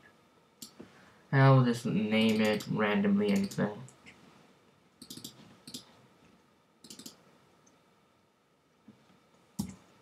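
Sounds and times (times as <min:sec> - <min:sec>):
mouse and keyboard clicks: 0:05.0 - 0:05.9, 0:06.8 - 0:07.2.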